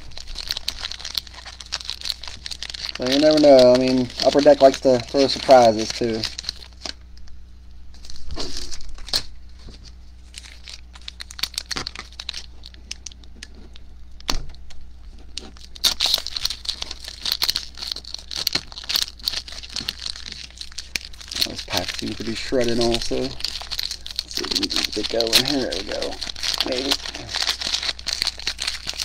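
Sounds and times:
plastic wrapper crinkling and tearing: 0.0 - 7.1, 8.0 - 13.8, 15.0 - 29.0.

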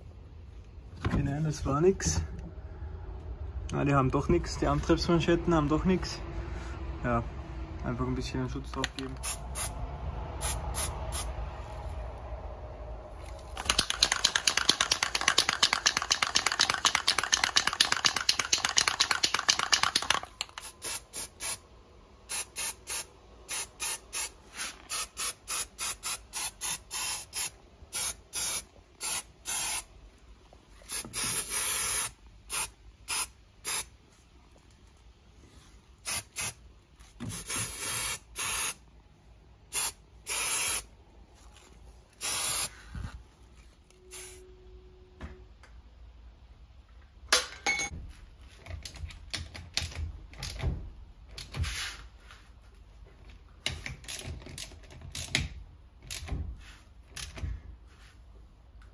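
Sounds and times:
aerosol can spraying: 13.6 - 21.6, 22.3 - 29.9, 30.9 - 33.9, 36.0 - 36.6, 37.3 - 38.8, 39.7 - 40.9, 42.2 - 42.8.

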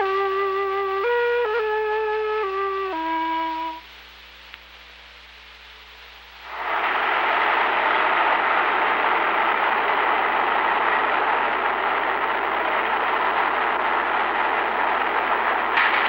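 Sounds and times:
solo flute melody: 0.0 - 3.9
quiet hiss: 0.0 - 16.0
street noise rushing: 6.4 - 16.0.

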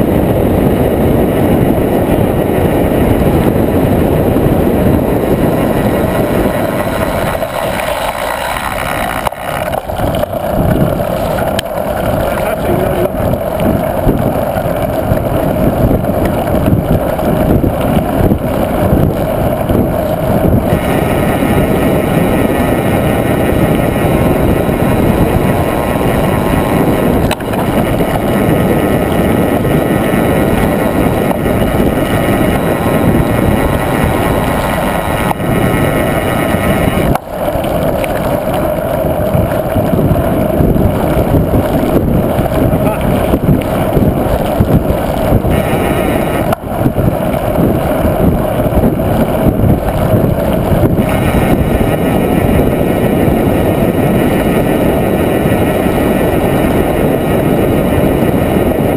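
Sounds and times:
tyre rumble: 0.0 - 58.9
wind rush on microphone: 0.0 - 58.9
bike knocks and rattles: 24.2 - 35.7.

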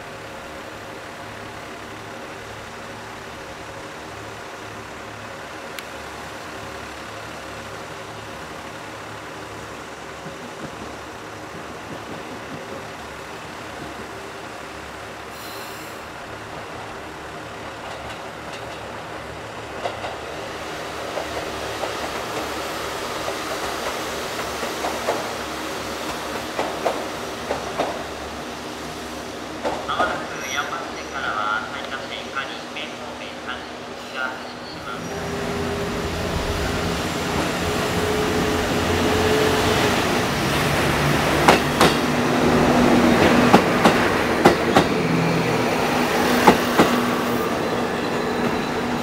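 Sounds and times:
diesel railcar engine humming: 0.0 - 49.0
wheels clacking over rail joints: 17.6 - 20.4, 21.1 - 28.2, 29.5 - 30.2, 40.5 - 49.0.

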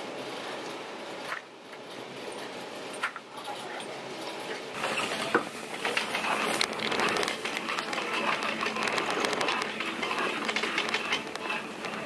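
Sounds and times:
shopping cart rattling: 4.8 - 12.0.

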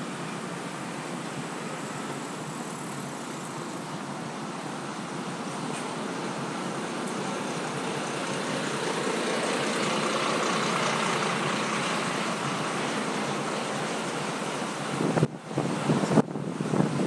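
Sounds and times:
road traffic passing: 0.0 - 17.0
wind buffeting microphone: 11.3 - 17.0.

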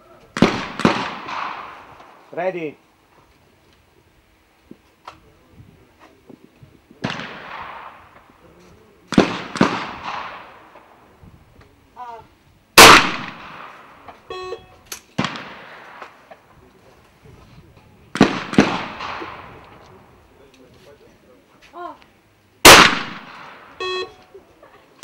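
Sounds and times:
shotgun shots: 0.4 - 2.2, 7.0 - 8.3, 9.1 - 10.9, 12.8 - 14.0, 15.2 - 16.3, 18.2 - 19.6, 22.6 - 23.8.

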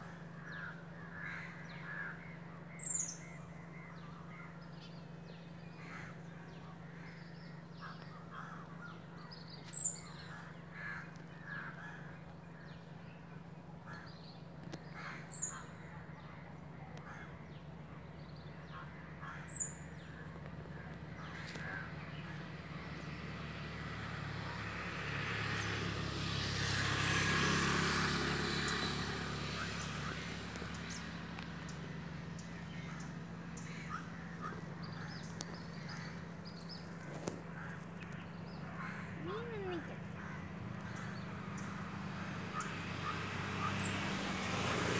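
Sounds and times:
crows cawing: 0.1 - 2.6, 5.8 - 9.2, 10.1 - 12.2, 13.9 - 15.7, 17.0 - 17.4, 18.7 - 20.1, 32.4 - 36.4, 37.1 - 41.6
bird calls: 0.1 - 23.2, 28.5 - 41.9.

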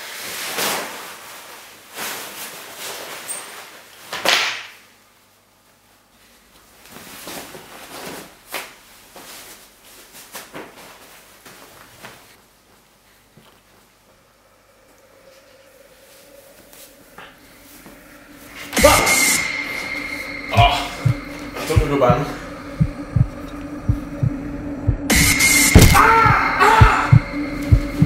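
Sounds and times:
clothing rustling and swishing: 0.0 - 4.2, 6.1 - 14.1, 15.3 - 18.8
shirt rustling: 6.6 - 14.0.

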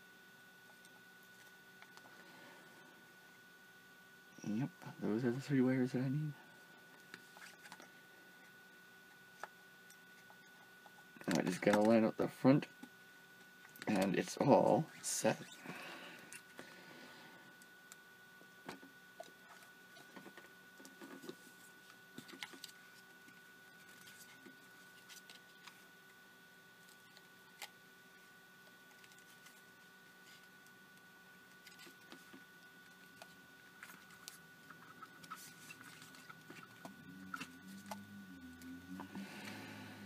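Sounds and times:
faint steady hum: 0.0 - 40.0.

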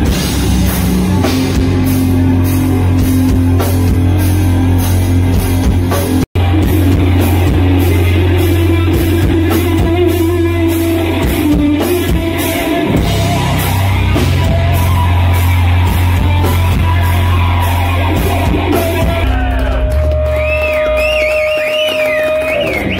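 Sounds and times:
distorted electric guitar drone: 0.0 - 21.8.

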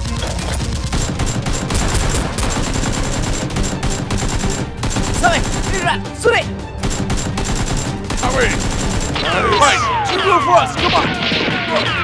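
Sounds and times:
automatic gunfire: 0.8 - 5.8, 6.8 - 9.4.

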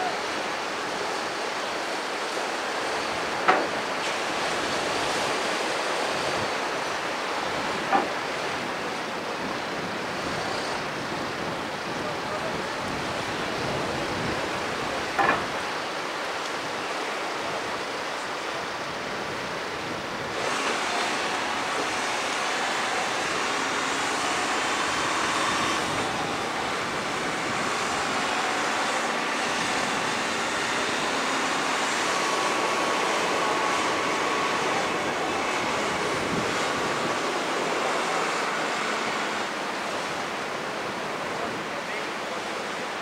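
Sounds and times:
surf: 0.0 - 43.0
wind on shore: 0.0 - 43.0.

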